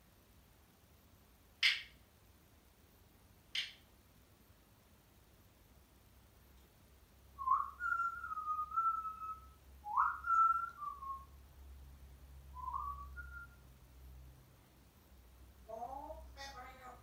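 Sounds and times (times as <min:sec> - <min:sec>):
parrot whistling: 0:07.4 - 0:11.3, 0:12.6 - 0:13.6.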